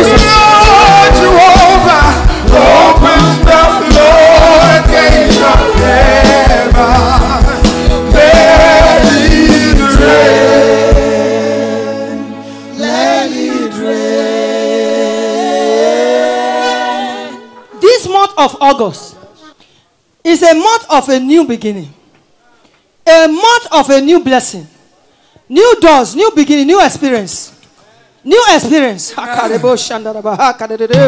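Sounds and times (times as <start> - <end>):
drum and bass beat: 0.0 - 11.3
amplified gospel singing: 0.0 - 17.8.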